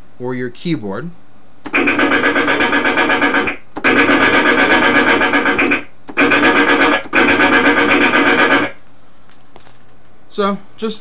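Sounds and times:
machinery sound effect pulsing: 0:01.7 - 0:08.8.

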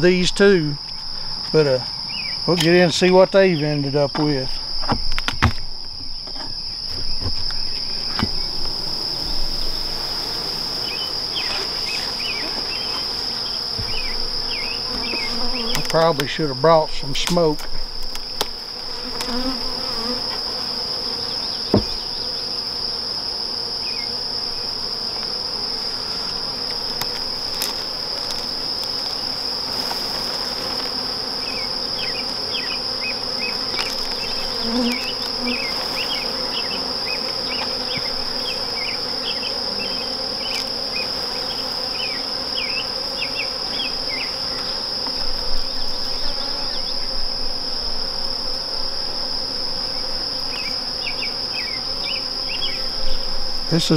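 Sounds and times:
bees humming: 0:00.0 - 0:53.9
sharp knock on wood: 0:21.7 - 0:22.0.

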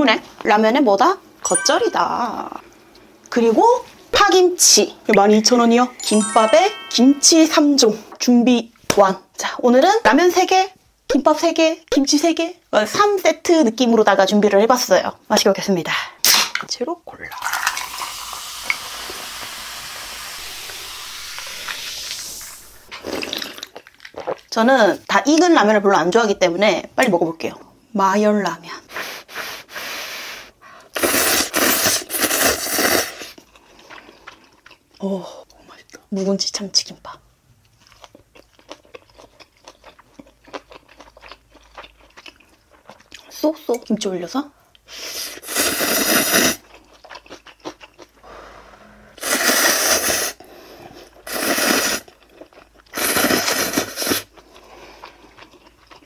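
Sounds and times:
person slurping noodles: 0:17.2 - 0:24.4, 0:31.0 - 0:33.4, 0:45.0 - 0:46.6, 0:48.3 - 0:52.2, 0:52.9 - 0:55.1.

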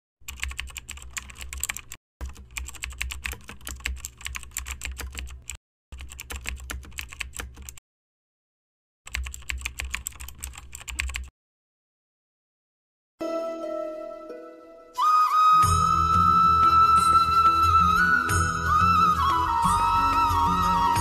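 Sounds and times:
keyboard typing clicks: 0:00.3 - 0:07.8, 0:09.1 - 0:11.3.

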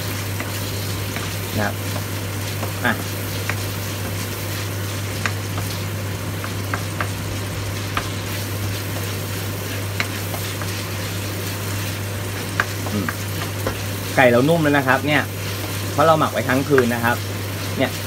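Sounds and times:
chicken sizzling in hot oil: 0:00.0 - 0:18.0
wooden spatula scraping a pan: 0:07.4 - 0:18.0.

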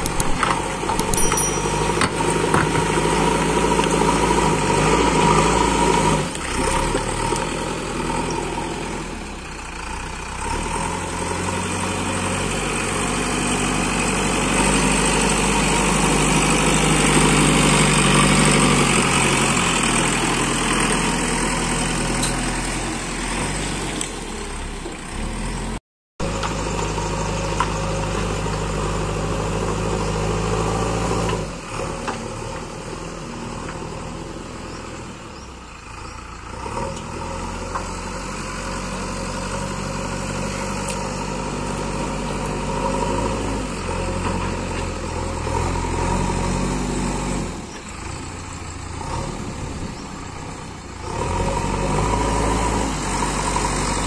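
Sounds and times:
diesel engine under load: 0:00.0 - 0:54.0.

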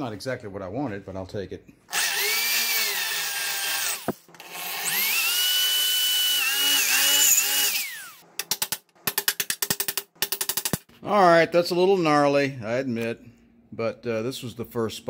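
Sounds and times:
power drill drilling metal: 0:01.9 - 0:08.2.

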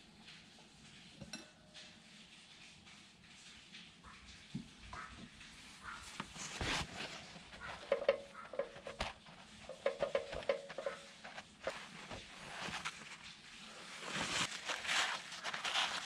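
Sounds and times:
paper towel rustling: 0:05.6 - 0:16.0.

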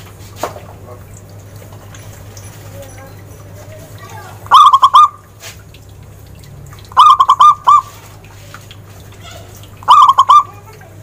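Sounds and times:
dove cooing: 0:04.5 - 0:05.2, 0:06.9 - 0:08.2, 0:09.2 - 0:10.8.

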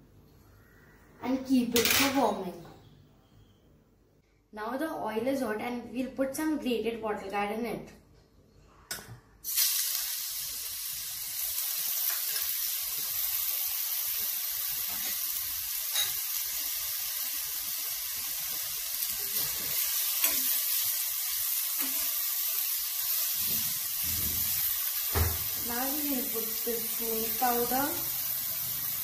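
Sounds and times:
gourd sizzling in hot oil: 0:09.4 - 0:29.0.

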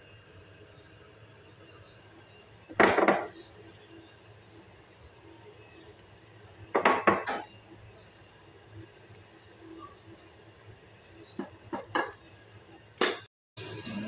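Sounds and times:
kitchenware clattering on dishes: 0:02.6 - 0:03.5, 0:06.7 - 0:07.6, 0:11.4 - 0:12.2, 0:13.0 - 0:14.0.

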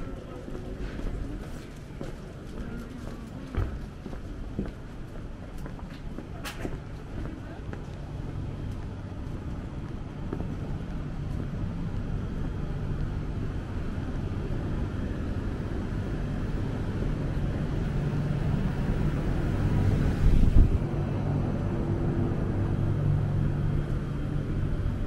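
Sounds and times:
vehicle engine humming: 0:08.0 - 0:25.0.

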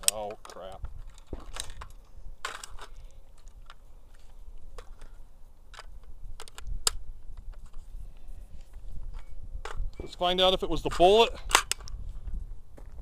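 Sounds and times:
rifle metallic clicks and rattles: 0:00.0 - 0:07.8, 0:11.4 - 0:12.0.

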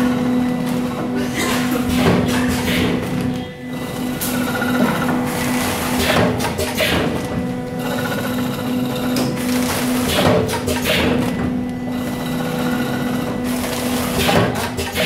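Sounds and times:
machine motor hum: 0:00.0 - 0:15.0
mechanical clatter and hiss: 0:01.4 - 0:03.2, 0:04.2 - 0:07.3, 0:09.0 - 0:11.5, 0:13.4 - 0:15.0.

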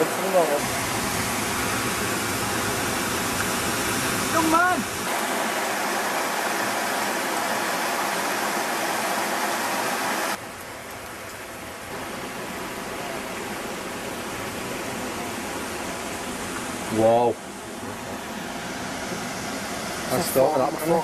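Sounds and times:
waterfall rushing: 0:00.0 - 0:10.4.

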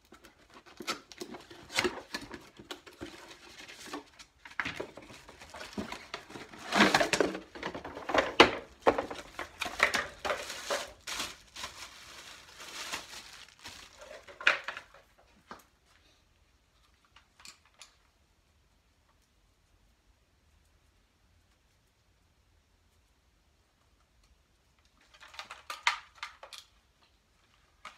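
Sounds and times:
packaging rustling and crinkling: 0:00.0 - 0:15.7.

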